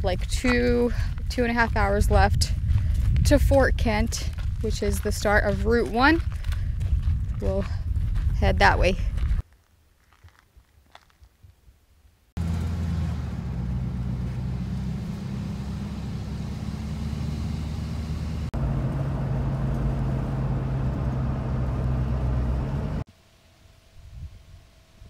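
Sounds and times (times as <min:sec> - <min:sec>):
road noise: 0:12.4 - 0:23.1
truck engine drone: 0:12.4 - 0:23.1.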